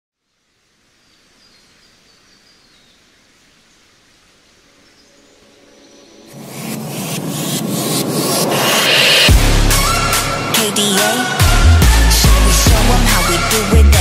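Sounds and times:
faint hiss: 0:00.2 - 0:09.3
bird-like chirps: 0:01.0 - 0:03.1
music beat and bass: 0:06.3 - 0:14.0.

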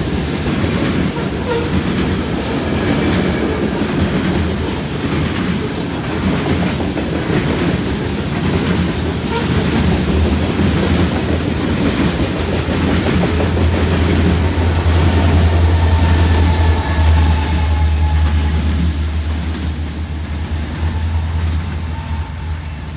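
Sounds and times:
train wheel clatter on rails: 0:00.0 - 0:21.8
diesel locomotive engine drone: 0:00.0 - 0:22.9.

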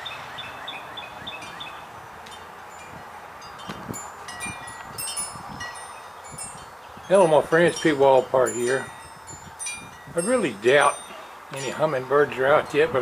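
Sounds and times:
wind chime tinkling: 0:02.3 - 0:12.3.

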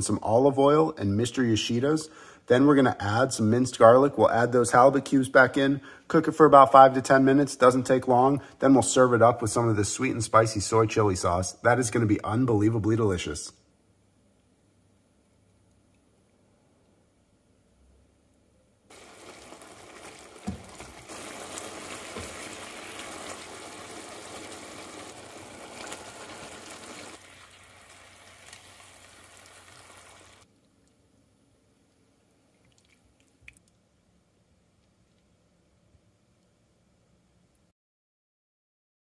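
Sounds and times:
vegetables sizzling in frying pan: 0:18.9 - 0:30.4.

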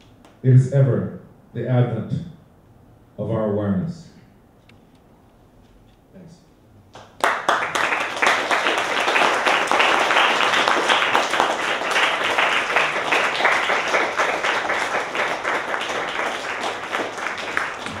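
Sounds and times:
audience applauding: 0:06.9 - 0:18.0.

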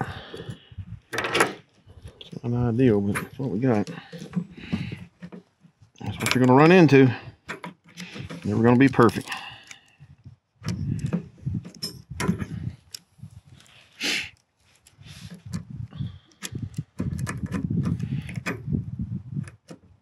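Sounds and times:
low rumble of handling noise: 0:00.0 - 0:07.2, 0:08.0 - 0:09.6.

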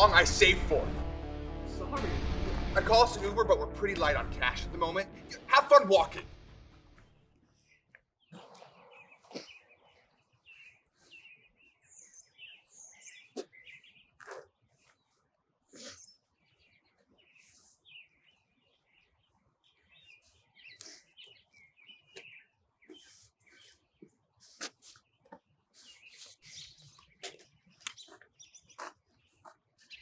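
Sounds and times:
small birds chirping: 0:07.1 - 0:30.0.

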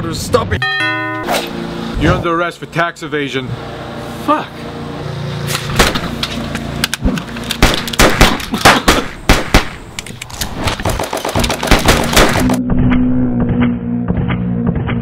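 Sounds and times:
handgun shots: 0:05.6 - 0:06.1, 0:07.5 - 0:09.8, 0:10.8 - 0:12.6.

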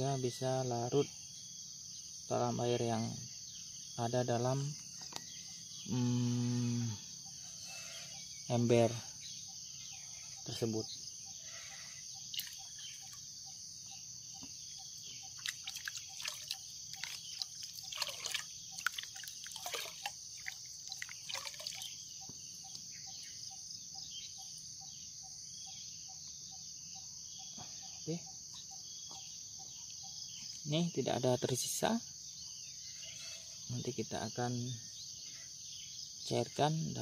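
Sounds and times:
crickets chirring: 0:00.0 - 0:37.0
water pouring into bucket: 0:15.4 - 0:21.9.

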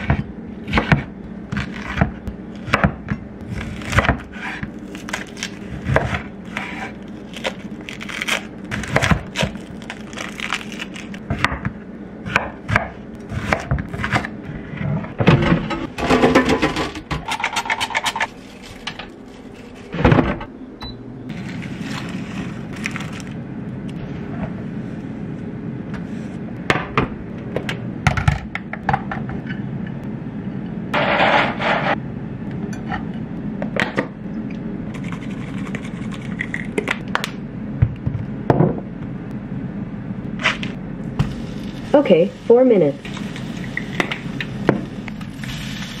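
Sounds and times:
air fryer fan humming: 0:00.0 - 0:46.0
spice shaker shaking: 0:34.9 - 0:36.5.

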